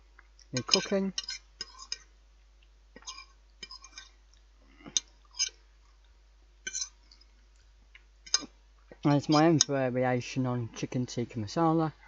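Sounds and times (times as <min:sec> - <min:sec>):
chewing: 0:01.6 - 0:09.1
fork clicking on plate: 0:08.3 - 0:08.5.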